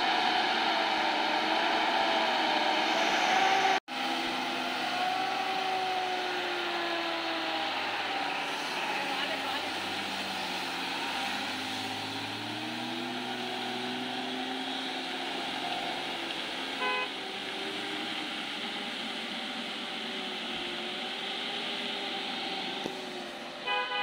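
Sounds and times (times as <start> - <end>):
diesel lorry engine: 0.0 - 24.0
road noise: 0.0 - 24.0
horn beep: 16.8 - 17.1.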